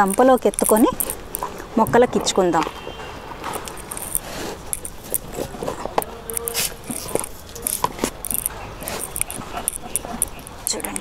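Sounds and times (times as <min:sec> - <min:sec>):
plastic scoop scraping manure: 0:03.4 - 0:10.6.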